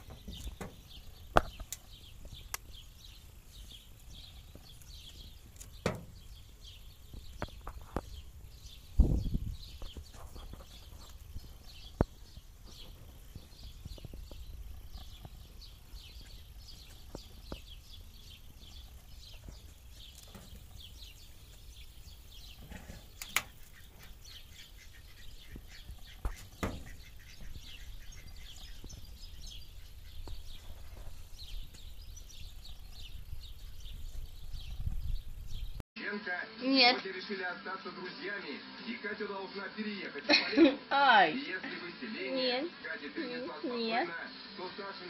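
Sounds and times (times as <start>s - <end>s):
small birds chirping: 0.0s - 35.8s
sharp clicks: 1.3s - 2.7s, 23.2s - 23.6s.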